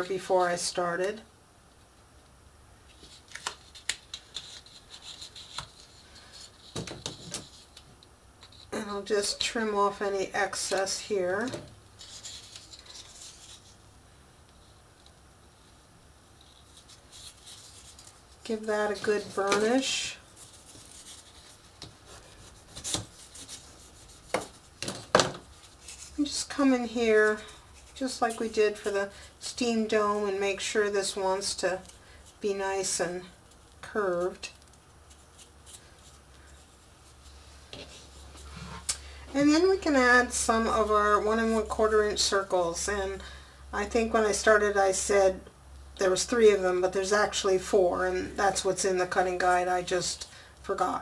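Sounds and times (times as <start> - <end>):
paper rubbing: 2.9 - 7.8, 12.0 - 13.8, 16.3 - 28.9
cardboard rustling and tapping: 6.6 - 7.6.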